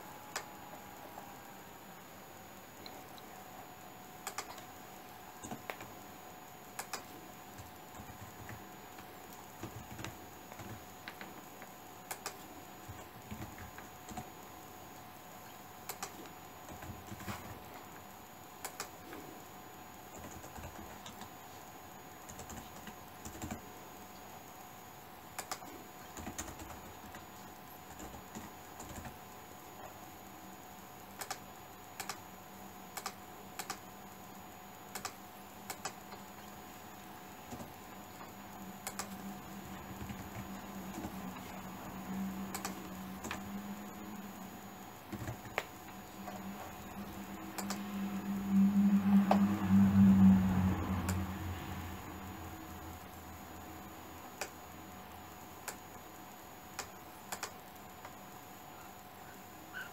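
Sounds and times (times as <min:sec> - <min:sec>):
faint steady hum: 0:00.0 - 0:59.9
computer keyboard typing: 0:04.2 - 0:04.7, 0:06.7 - 0:11.4, 0:12.1 - 0:14.3, 0:18.6 - 0:19.0, 0:20.1 - 0:21.3, 0:22.2 - 0:23.7, 0:25.4 - 0:29.2, 0:31.2 - 0:31.4, 0:34.9 - 0:36.0, 0:38.8 - 0:41.6, 0:42.4 - 0:43.6.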